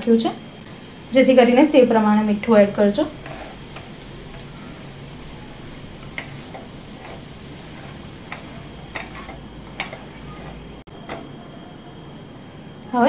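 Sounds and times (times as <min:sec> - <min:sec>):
steady low hum: 0:00.0 - 0:13.0
spatula scraping and tapping pan: 0:03.0 - 0:04.6, 0:05.9 - 0:11.3.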